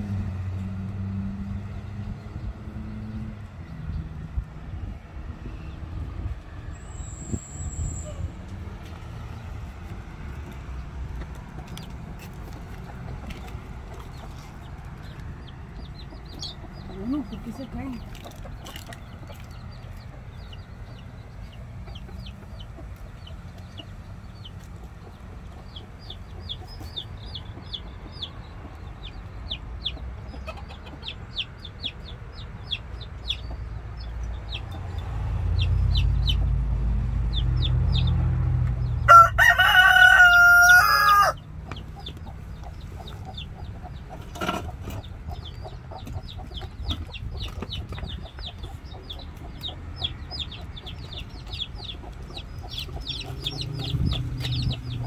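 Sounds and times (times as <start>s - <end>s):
baby chicks peeping: 8.0s - 55.0s
rooster crowing: 39.0s - 41.4s.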